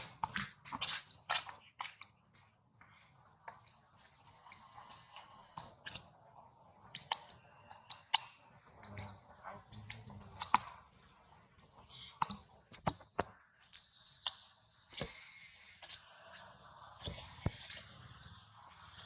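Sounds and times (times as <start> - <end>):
monkey chewing fruit: 0.0 - 2.4, 7.0 - 13.0.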